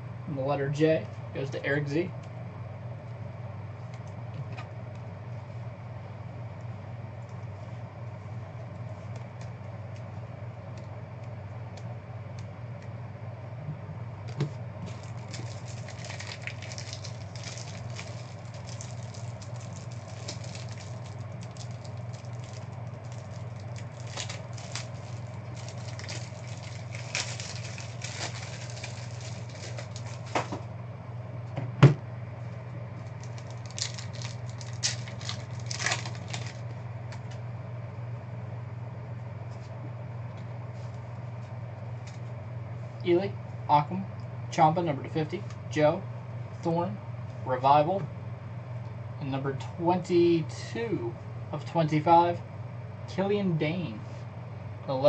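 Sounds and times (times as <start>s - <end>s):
steady low hum: 0.0s - 55.0s
foil wrappers crinkling: 14.8s - 30.6s, 33.0s - 37.4s.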